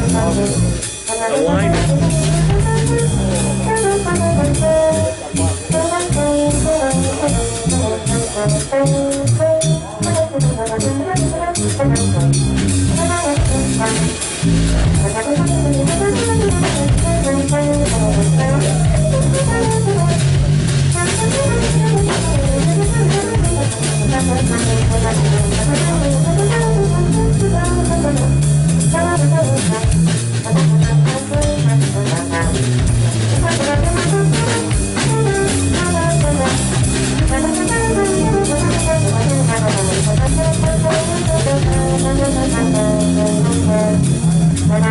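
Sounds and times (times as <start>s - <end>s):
keytar: 0.0s - 10.3s
drum kit: 0.0s - 44.9s
trombone: 0.0s - 44.9s.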